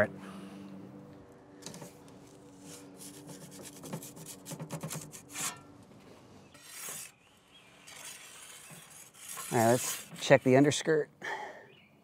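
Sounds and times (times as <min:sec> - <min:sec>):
metal pizza peel scraping stone: 0:02.6 - 0:05.7, 0:06.5 - 0:07.2, 0:07.8 - 0:10.8.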